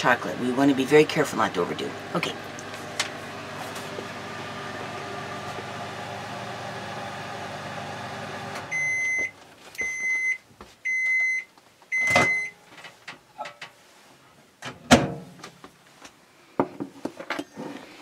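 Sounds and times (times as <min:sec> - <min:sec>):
microwave oven humming: 0:00.0 - 0:09.3
microwave beeps: 0:08.7 - 0:12.6.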